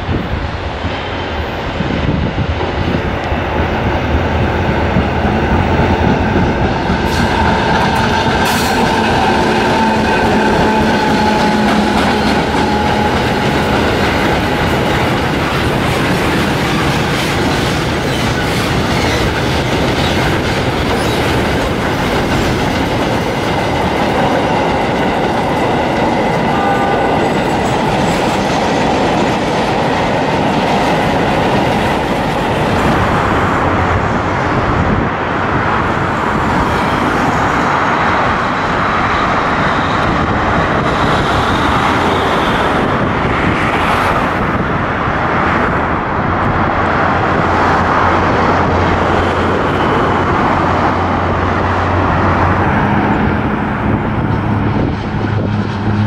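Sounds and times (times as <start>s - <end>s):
diesel locomotive engine drone: 0.0s - 56.0s
freight train wheels clicking: 3.2s - 33.8s.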